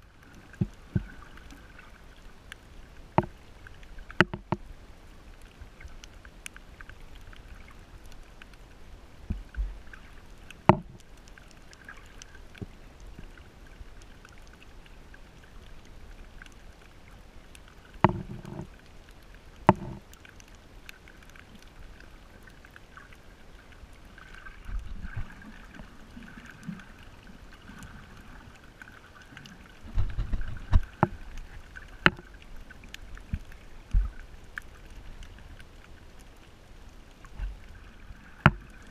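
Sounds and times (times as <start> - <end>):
muffled underwater hiss: 0.0 - 38.9.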